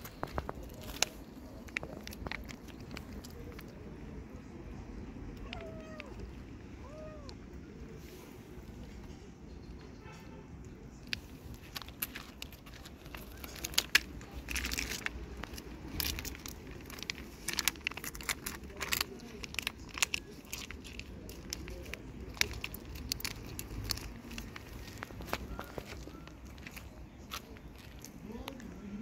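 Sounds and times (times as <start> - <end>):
plastic pouch crackling: 0.0 - 3.9, 11.0 - 28.7
cat chewing food: 0.0 - 4.0, 11.1 - 28.9.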